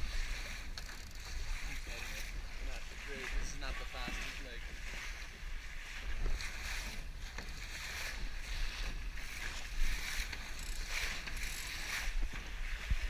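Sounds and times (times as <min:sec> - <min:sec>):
water splashing along boat hull: 0:00.0 - 0:13.0
wind rumble on microphone: 0:00.0 - 0:13.0.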